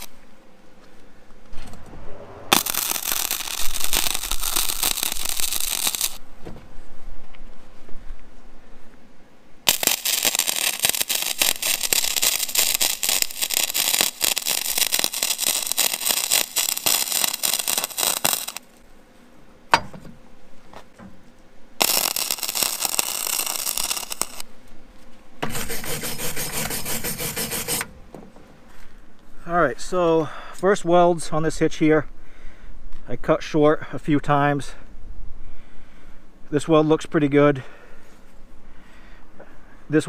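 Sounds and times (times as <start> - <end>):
welding arc crackling: 2.5 - 6.2, 9.6 - 18.8, 21.8 - 24.4, 25.4 - 27.9.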